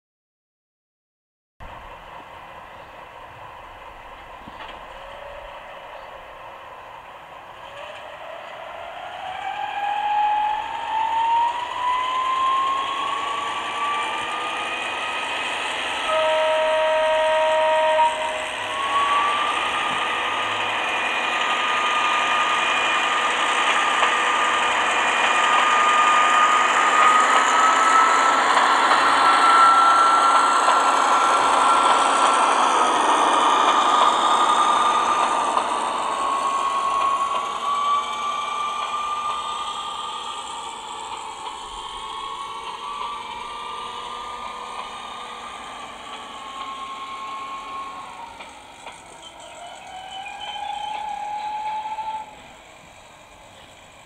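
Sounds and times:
model locomotive whine: 1.6 - 54.0
rail hiss: 1.6 - 54.0
locomotive horn: 16.0 - 19.4.

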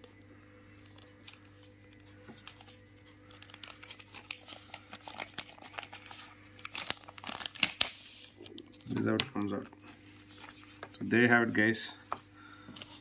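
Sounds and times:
steady low hum: 0.0 - 13.0
plastic pouch crinkling: 2.4 - 11.1.

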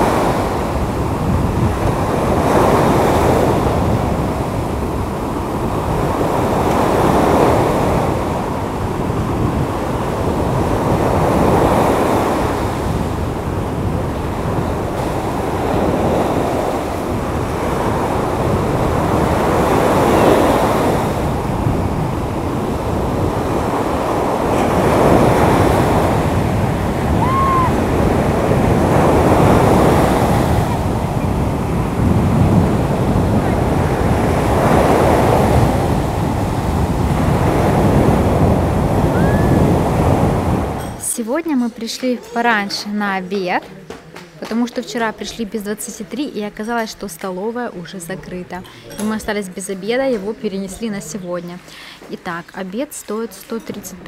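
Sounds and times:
wind buffeting microphone: 0.0 - 41.0
sea surf breaking ashore: 0.0 - 41.4.

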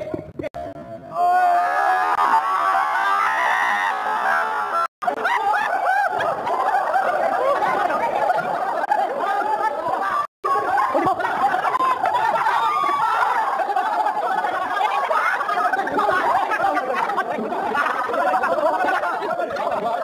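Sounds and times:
group of people laughing: 3.8 - 20.0
people chattering: 5.0 - 20.0.

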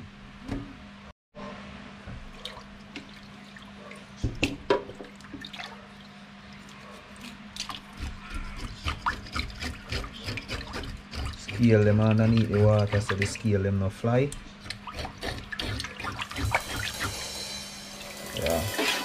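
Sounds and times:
fish knocking in sink: 4.2 - 5.5
tap water splashing into sink: 4.2 - 5.7
knife scraping fish scales: 8.0 - 13.4, 14.6 - 17.1.

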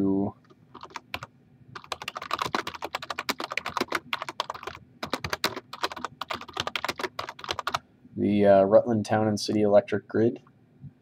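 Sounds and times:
fast typing on keyboard: 0.4 - 7.8.

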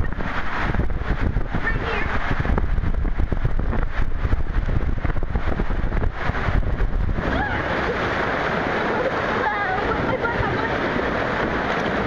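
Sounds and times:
water rushing in slide tube: 0.0 - 12.0
wind buffeting microphone: 0.0 - 12.0.

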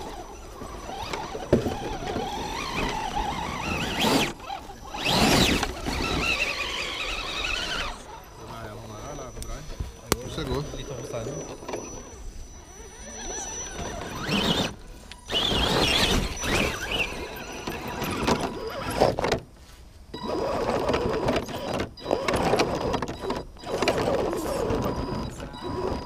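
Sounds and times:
tyres scraping on rock: 0.0 - 8.1
electric motor and gears whining: 0.0 - 26.0.

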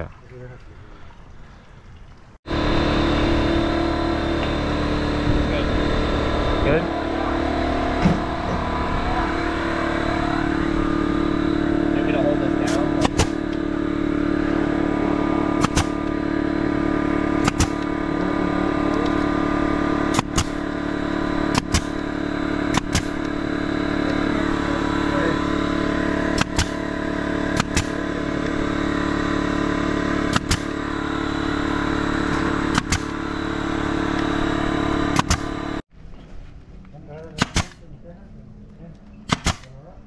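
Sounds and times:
steady engine hum: 2.4 - 40.0
stapler firing staples: 12.7 - 13.4, 15.6 - 16.0, 17.4 - 17.8, 20.1 - 20.6, 21.5 - 22.0, 22.7 - 23.3, 26.4 - 26.8, 27.6 - 28.0, 30.3 - 30.7, 32.7 - 33.1, 35.2 - 35.5, 37.4 - 37.8, 39.3 - 39.7.

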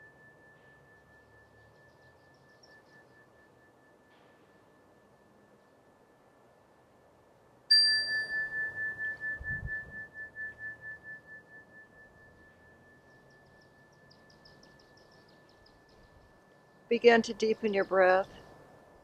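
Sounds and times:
faint bird chirps: 0.0 - 6.0, 7.7 - 18.6
metal bell ringing: 7.7 - 13.2.

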